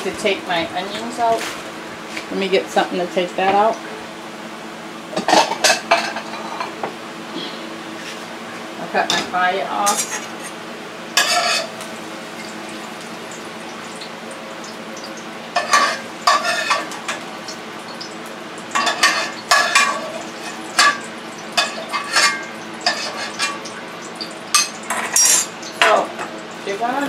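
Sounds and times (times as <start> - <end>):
low sizzle from pan: 0.0 - 27.0
metal spoon scraping frying pan: 9.8 - 10.6, 11.2 - 11.7, 15.6 - 17.0, 18.8 - 23.6.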